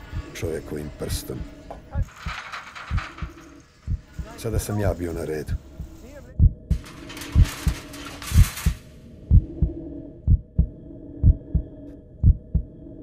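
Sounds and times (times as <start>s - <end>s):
steady low drone: 0.0s - 13.0s
heartbeat thumps: 2.8s - 4.4s, 5.5s - 7.8s, 8.4s - 12.8s.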